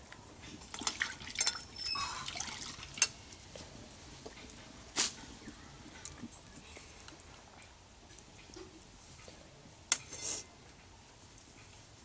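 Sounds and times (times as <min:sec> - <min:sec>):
water sloshing and dripping: 0:00.6 - 0:04.6.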